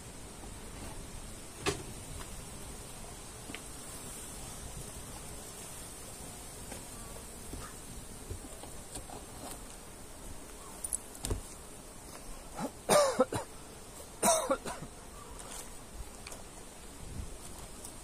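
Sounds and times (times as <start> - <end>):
person coughing: 12.6 - 13.5, 14.2 - 14.9.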